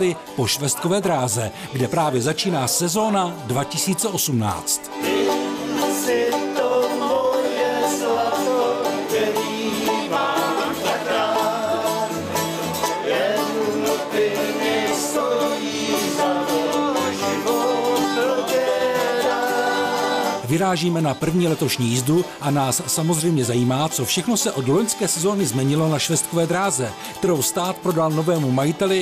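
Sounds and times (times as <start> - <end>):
mandolin: 0.0 - 29.0
strummed acoustic guitar: 0.0 - 29.0
men singing together: 5.0 - 20.4.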